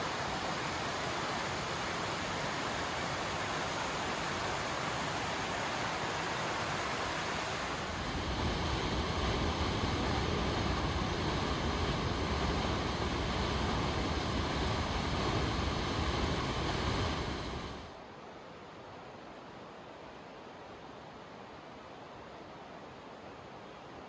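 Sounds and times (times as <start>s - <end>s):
creek water running: 0.0s - 17.8s.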